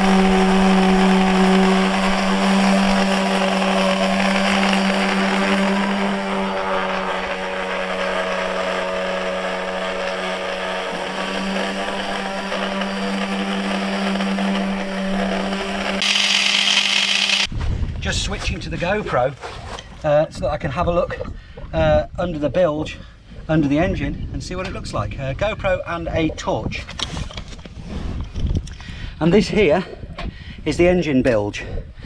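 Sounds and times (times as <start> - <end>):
orbital sander on metal: 0.0 - 17.5.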